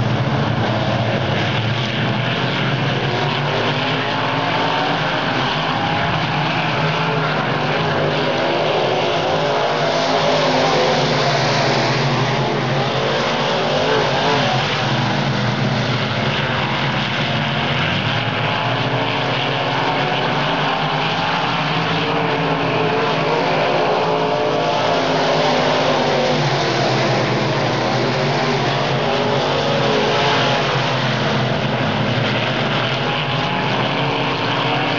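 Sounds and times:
stock car engines racing: 0:00.0 - 0:34.9.

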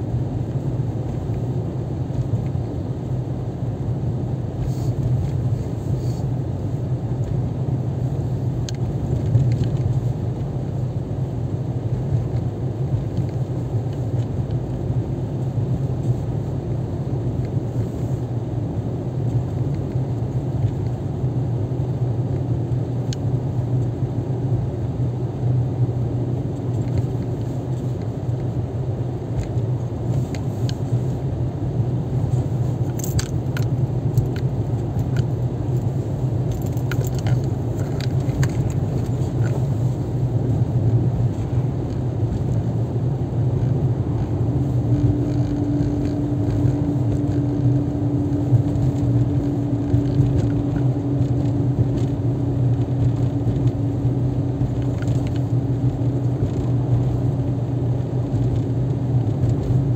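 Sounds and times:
car engine and tyres droning: 0:00.0 - 0:59.9
light clicks and rattles: 0:08.7 - 0:10.0, 0:32.2 - 0:40.0.

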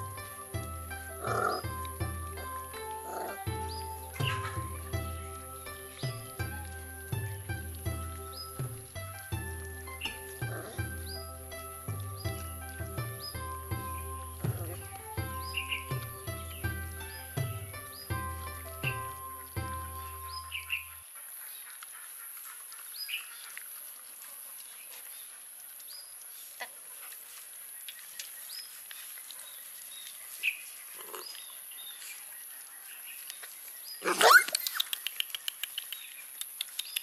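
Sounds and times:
puppies lapping and smacking: 0:21.6 - 0:28.0
puppy squeaks: 0:34.0 - 0:35.4
quick run of clicks: 0:34.4 - 0:37.0.

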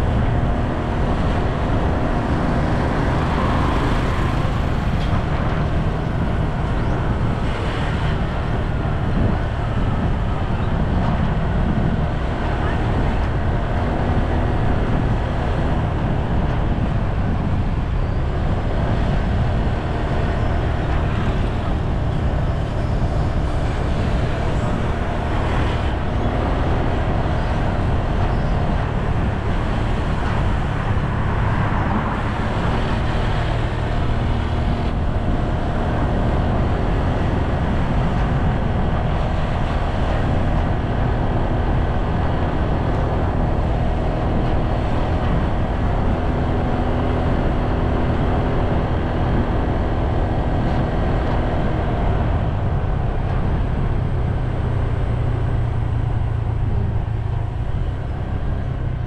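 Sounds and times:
low road rumble: 0:00.0 - 0:59.0
vehicle engine running: 0:00.0 - 0:59.0.

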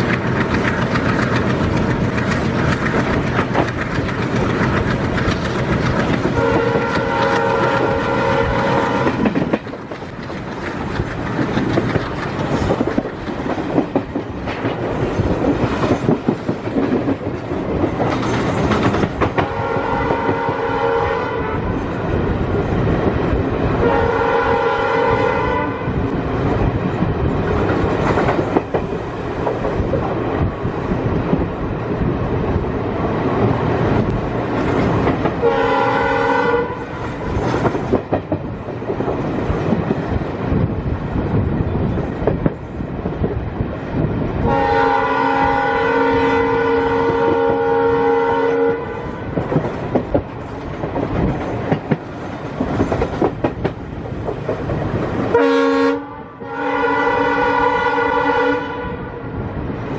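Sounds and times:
train wheels clickety-clack: 0:00.0 - 0:24.3, 0:26.0 - 0:55.8
train rumble: 0:00.0 - 0:59.9
diesel locomotive horn blasts: 0:06.3 - 0:09.4, 0:19.4 - 0:21.8, 0:23.8 - 0:26.1, 0:35.4 - 0:37.0, 0:44.4 - 0:49.3, 0:55.3 - 0:59.3.

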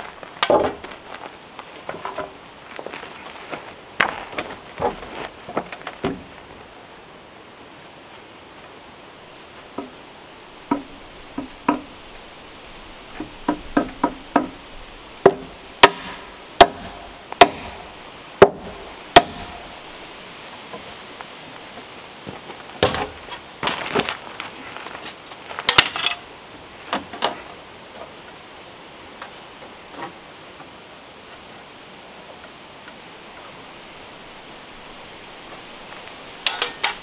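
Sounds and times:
wooden knocks and clatter: 0:00.4 - 0:01.0, 0:01.8 - 0:03.0, 0:03.6 - 0:06.4, 0:10.7 - 0:11.9, 0:13.2 - 0:14.6
sharp loud strikes: 0:15.3 - 0:19.6.

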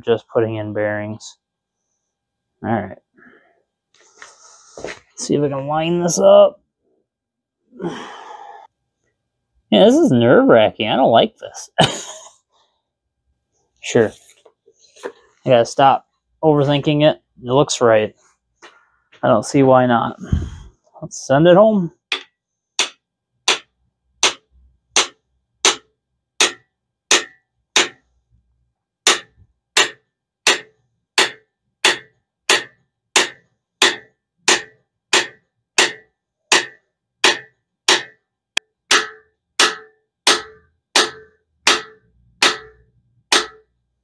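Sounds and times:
hammer striking metal: 0:22.1 - 0:24.4, 0:25.0 - 0:28.0, 0:29.1 - 0:38.2, 0:38.9 - 0:43.7.

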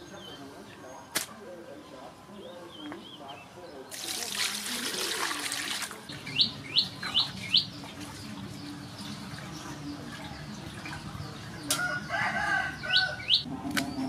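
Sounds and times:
water rinsing in metal basin: 0:04.0 - 0:06.1.

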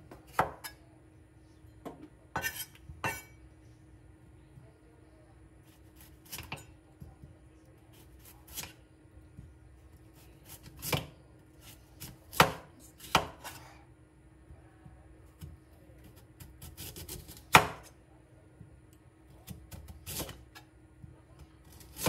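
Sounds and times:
knife chopping on cutting board: 0:00.1 - 0:00.8, 0:01.8 - 0:03.3, 0:06.0 - 0:06.7, 0:07.9 - 0:08.8, 0:10.4 - 0:13.7, 0:15.4 - 0:17.9, 0:19.4 - 0:20.6.

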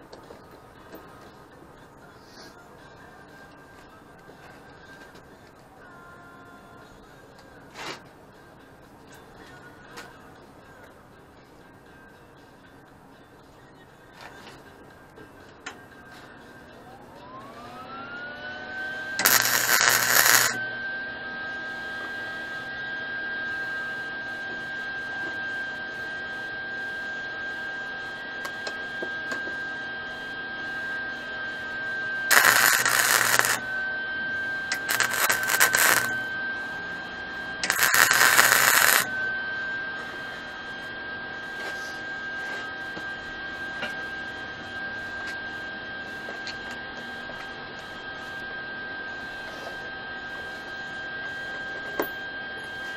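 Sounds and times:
high whine: 0:14.6 - 0:52.9
welding arc crackling: 0:19.2 - 0:20.6, 0:32.3 - 0:33.7, 0:34.7 - 0:36.2, 0:37.6 - 0:39.1.

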